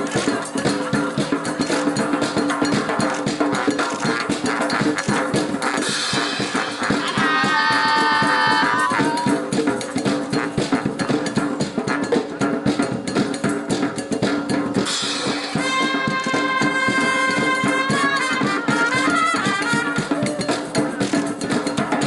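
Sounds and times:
band music with drums: 0.0 - 22.0
held high note: 6.1 - 9.6.

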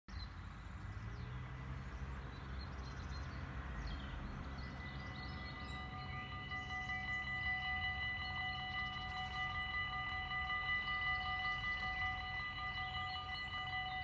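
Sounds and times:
birds chirping: 0.1 - 14.0
distant traffic rumble: 0.1 - 14.0
level crossing bells ringing: 4.7 - 14.0.

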